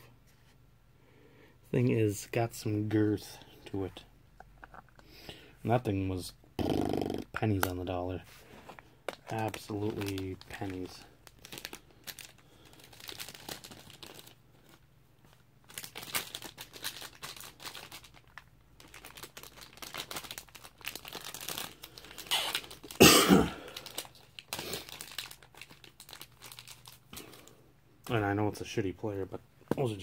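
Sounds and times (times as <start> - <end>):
plastic packaging crinkling and tearing: 9.1 - 23.0, 23.6 - 27.6.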